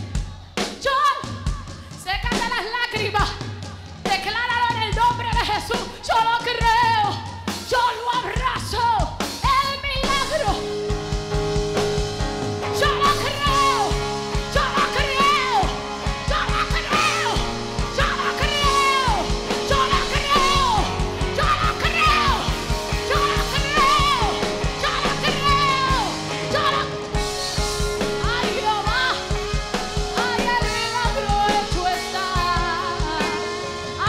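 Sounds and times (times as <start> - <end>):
steady drum beat: 0.0 - 34.0
woman singing: 0.2 - 10.8, 12.7 - 34.0
bass guitar: 3.1 - 34.0
electric guitar: 8.3 - 34.0.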